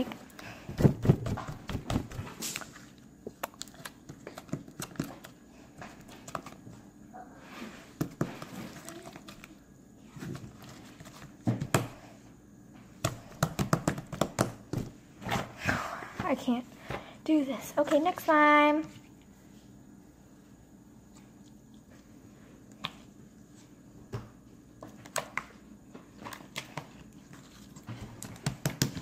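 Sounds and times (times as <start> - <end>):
slime squelching with clicks and pops: 1.3 - 6.6.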